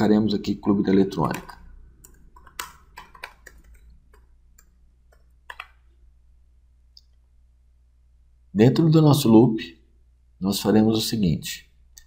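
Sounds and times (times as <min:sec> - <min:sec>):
faint low hum: 0:00.0 - 0:12.0
keyboard key clicks: 0:05.1 - 0:05.8.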